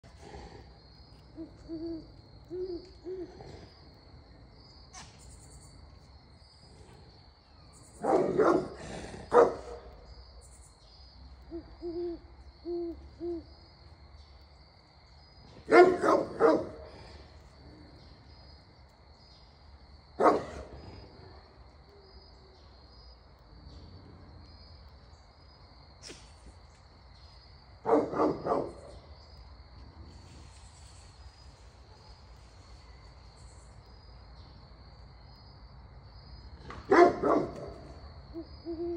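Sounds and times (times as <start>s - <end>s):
high insect trill: 0.0s - 38.9s
owl hooting: 1.4s - 3.4s, 11.4s - 13.5s, 38.3s - 38.9s
dogs barking: 8.0s - 10.0s, 15.7s - 16.9s, 20.2s - 20.7s, 27.8s - 29.0s, 36.8s - 37.8s.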